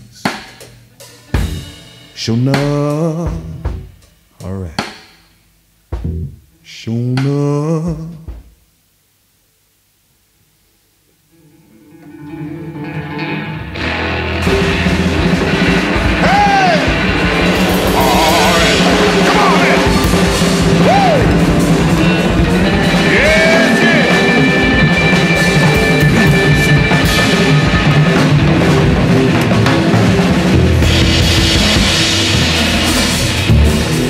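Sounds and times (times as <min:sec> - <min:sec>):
drums and cymbals: 0:00.0 - 0:06.5, 0:13.8 - 0:34.0
blues band playing: 0:00.2 - 0:03.9, 0:11.5 - 0:34.0
lead guitar bent notes: 0:11.4 - 0:34.0.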